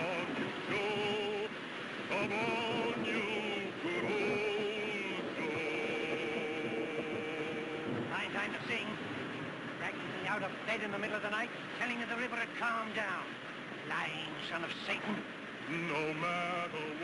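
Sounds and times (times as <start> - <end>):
rough water rushing: 0.0 - 17.0
storm wind: 0.0 - 17.0.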